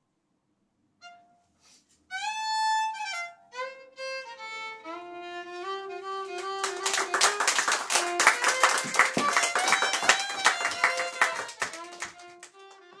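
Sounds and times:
solo violin: 1.0s - 1.4s, 2.1s - 7.2s, 8.0s - 13.0s
audience applauding: 6.4s - 12.9s.

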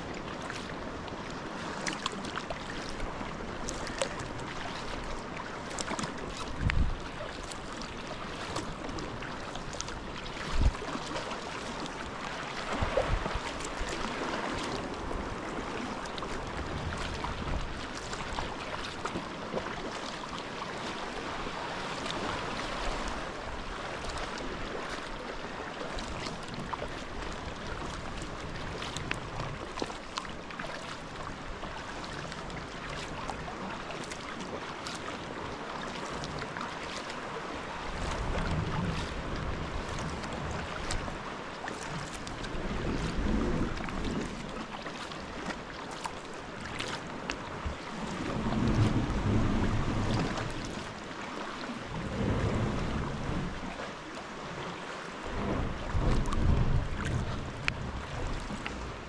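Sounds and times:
water splashing around kayak: 0.0s - 59.0s
wind buffeting microphone: 3.0s - 8.0s, 10.0s - 11.1s, 11.8s - 19.1s, 47.5s - 50.7s, 51.9s - 53.7s, 55.2s - 59.0s.

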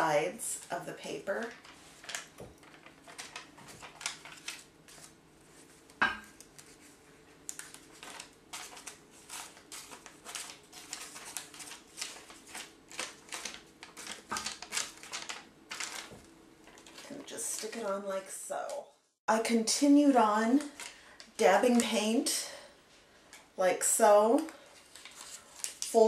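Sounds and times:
soft papery taps and rustles: 1.3s - 17.9s, 24.4s - 26.0s.

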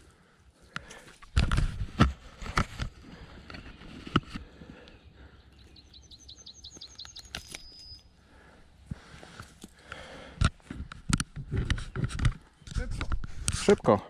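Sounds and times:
bird singing high notes: 5.6s - 8.2s.

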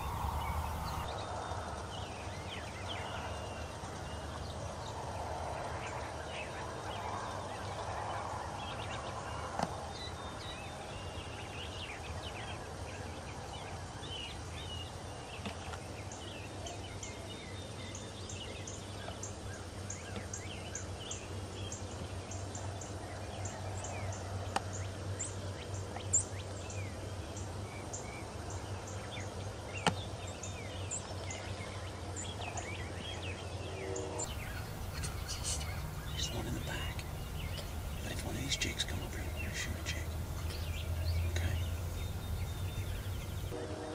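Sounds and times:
steady low hum: 0.0s - 1.3s, 34.2s - 43.6s
turkeys gobbling and calling: 34.3s - 43.5s.

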